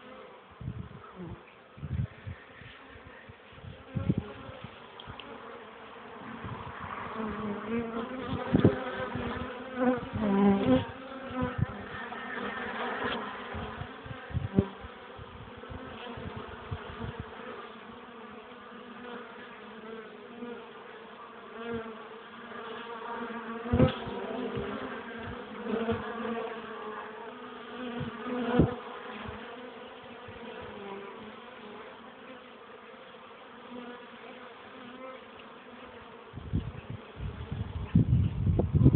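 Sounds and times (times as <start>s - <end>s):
bees buzzing: 0.0s - 38.1s.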